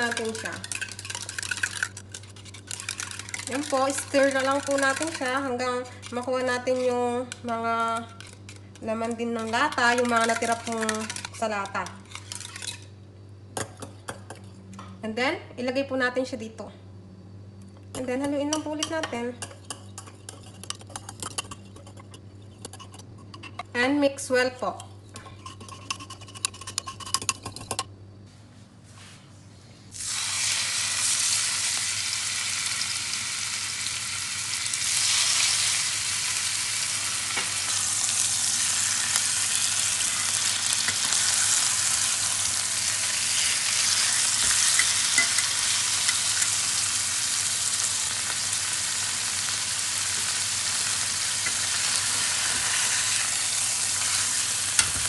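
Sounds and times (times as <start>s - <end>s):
pork chops sizzling in a pan: 30.0s - 55.0s.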